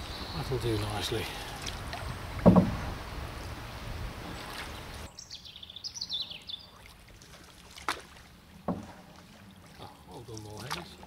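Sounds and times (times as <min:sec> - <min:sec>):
small birds singing: 0:00.0 - 0:03.6, 0:04.3 - 0:06.9
paddle drips: 0:00.0 - 0:05.1, 0:06.4 - 0:11.0
water noise: 0:00.0 - 0:11.0
sharp knocks: 0:02.4 - 0:02.9.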